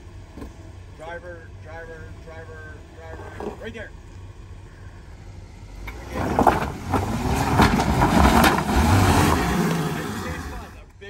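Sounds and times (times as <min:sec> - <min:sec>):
tyres scrabbling over rocks: 0:05.8 - 0:10.7
engine revving hard: 0:05.9 - 0:10.8.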